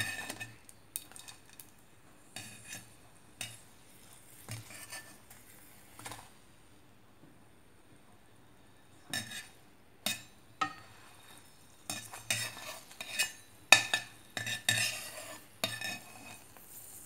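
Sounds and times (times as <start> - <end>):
metal skimmer scraping a frying pan: 0.0 - 1.6, 2.3 - 6.2, 9.1 - 17.0.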